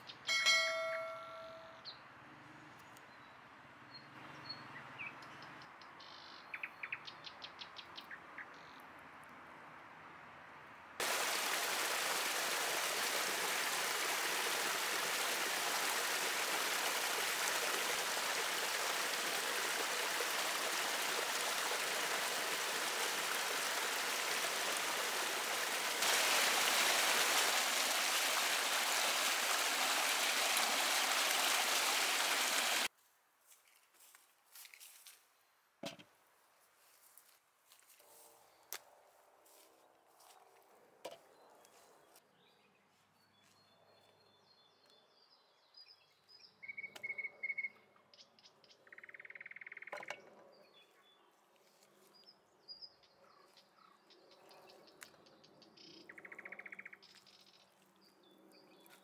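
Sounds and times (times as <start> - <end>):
stream splashing over cascade: 11.0 - 32.9
short bird chirps: 46.6 - 47.8.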